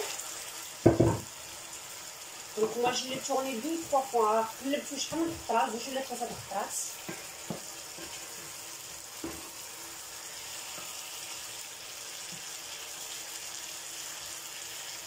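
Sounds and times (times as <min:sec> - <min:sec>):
chicken sizzling in oil: 0:00.0 - 0:15.0
spoon knocking against pan: 0:00.8 - 0:01.3.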